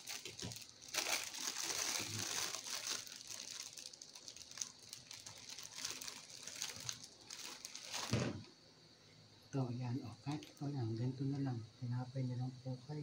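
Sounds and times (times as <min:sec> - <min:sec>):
plastic bag crinkling: 0:00.0 - 0:08.5, 0:10.2 - 0:10.6.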